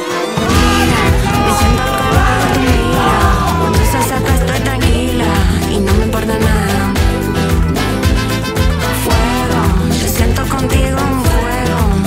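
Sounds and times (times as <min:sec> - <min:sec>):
brass band music: 0:00.0 - 0:05.3, 0:06.9 - 0:09.7
saxophone: 0:00.0 - 0:10.0
drum beat: 0:00.4 - 0:05.2.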